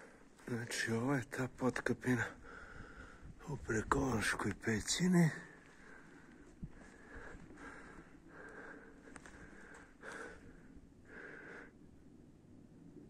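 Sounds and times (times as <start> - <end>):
faint breathing: 2.3 - 3.5, 5.3 - 12.2.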